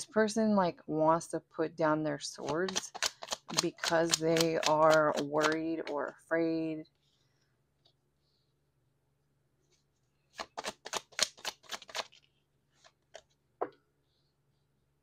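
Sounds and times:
cards being shuffled: 2.4s - 5.9s, 10.3s - 13.4s.

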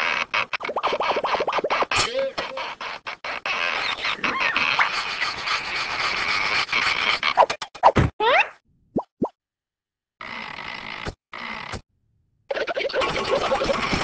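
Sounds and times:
squeaky cartoon vocal sounds: 0.0s - 7.5s, 8.2s - 8.6s
scratchy scraping noise: 0.0s - 7.6s, 12.9s - 14.0s.

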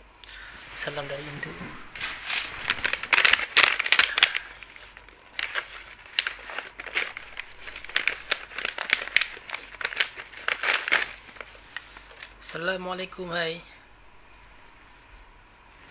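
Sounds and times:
microphone handling rustle: 0.7s - 5.0s.

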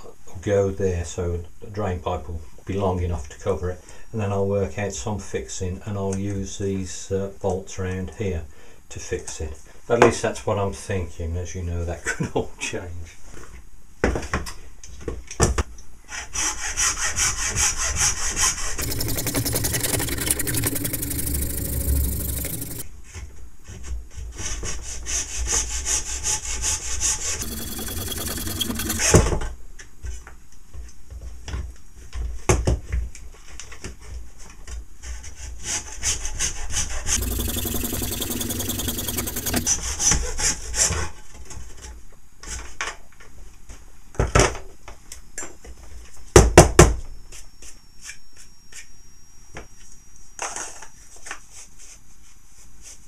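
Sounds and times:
hacksaw cutting plastic: 16.8s - 22.8s, 26.3s - 29.2s, 36.8s - 40.1s.

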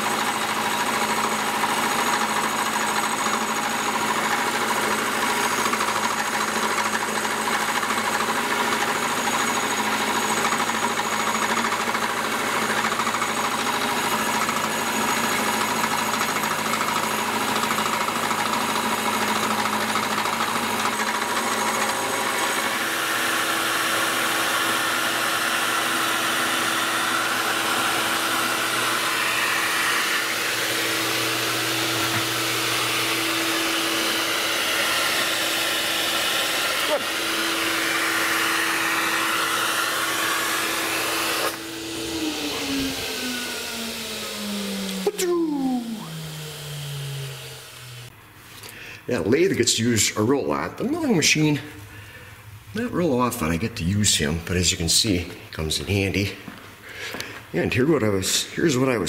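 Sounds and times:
milling machine cutting metal: 0.0s - 48.1s
steady hum: 41.6s - 48.2s.

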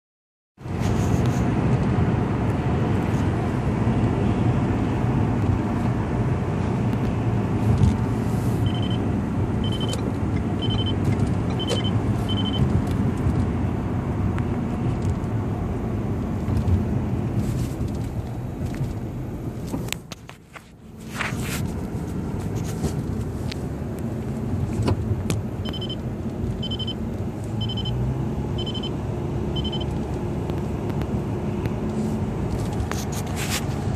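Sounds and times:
road and tyre noise in car: 0.6s - 33.9s
short high beeps: 8.6s - 9.0s, 9.6s - 10.0s, 10.6s - 12.6s, 25.6s - 26.0s, 26.6s - 27.0s, 27.6s - 28.0s, 28.6s - 29.0s, 29.6s - 29.9s.

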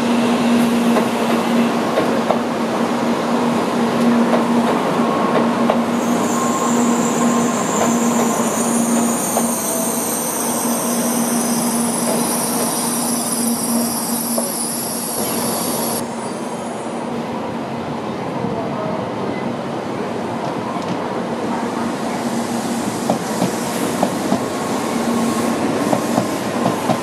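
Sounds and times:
train wheel and running noise: 0.0s - 27.0s
high thin wheel squeal: 6.0s - 16.4s.

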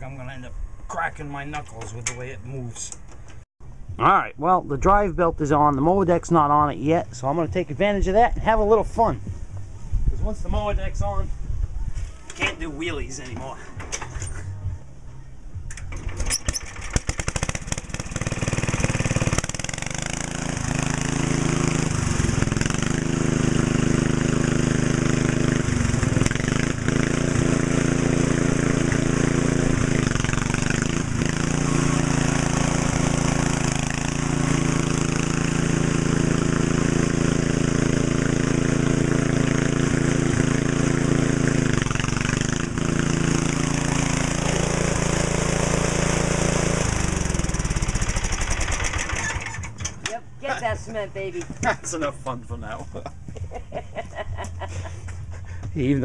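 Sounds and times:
tractor engine running: 15.6s - 52.6s.

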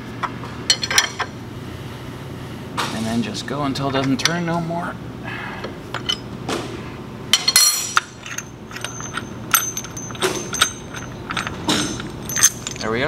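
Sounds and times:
metallic clinks of wrench: 7.4s - 13.0s.

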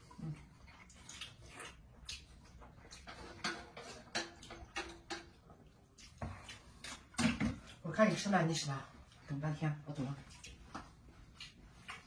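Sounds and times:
man chewing with lip smacks: 0.0s - 3.4s, 4.0s - 7.8s, 10.0s - 12.0s.

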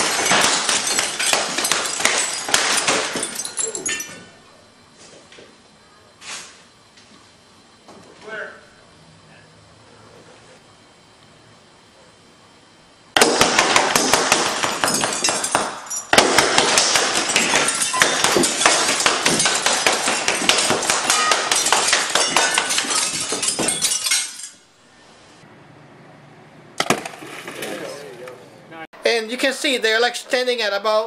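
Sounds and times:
glass cracking and breaking: 0.0s - 4.3s, 13.2s - 24.7s.

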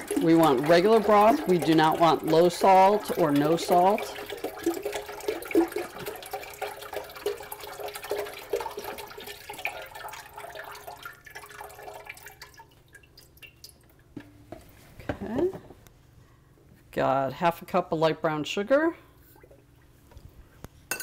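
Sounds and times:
broth pouring into a pot: 0.0s - 13.8s.

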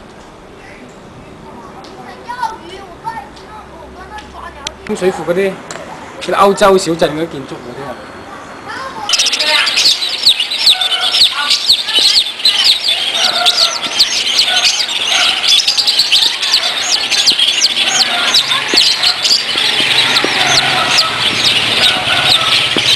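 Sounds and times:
chicks and ducklings peeping: 9.0s - 22.9s.

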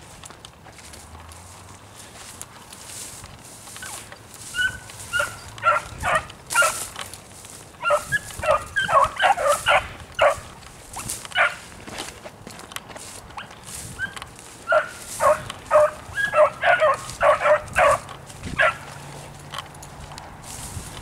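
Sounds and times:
beagles baying: 3.7s - 11.7s, 13.3s - 19.0s.

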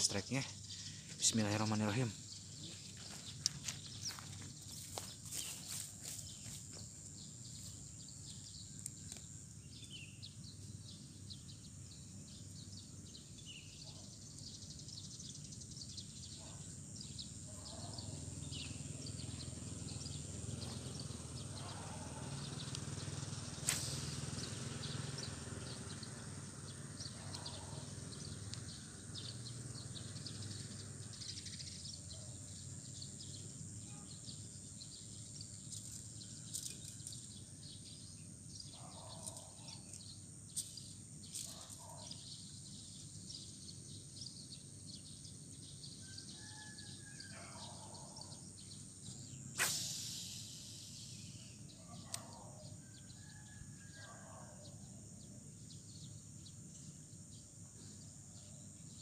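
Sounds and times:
distant city traffic rumble: 18.5s - 31.2s
steady high hiss: 49.5s - 51.7s
short bird chirps: 49.5s - 52.5s
sharp sudden sound: 49.6s - 50.4s.

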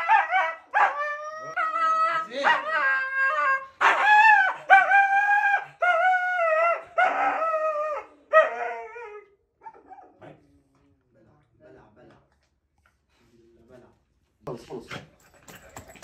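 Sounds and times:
husky howling: 0.0s - 10.1s.

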